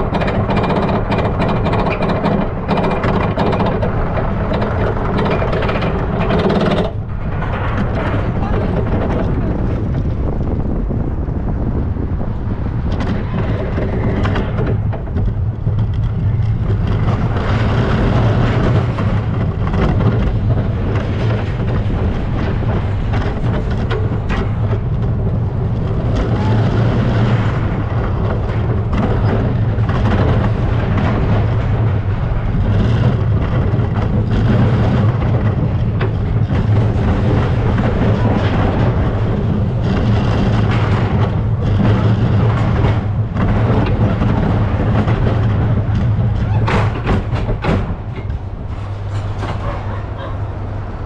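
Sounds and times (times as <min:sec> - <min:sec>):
roller coaster rattle: 0:00.0 - 0:51.0
roller coaster rumbling on rails: 0:00.0 - 0:51.0.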